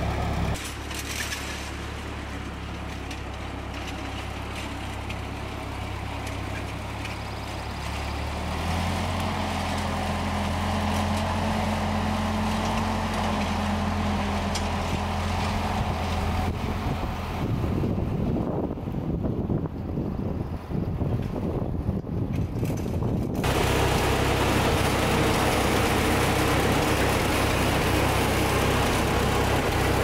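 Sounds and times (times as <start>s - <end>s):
tractor engine driving past: 0.0s - 19.3s, 23.3s - 30.0s.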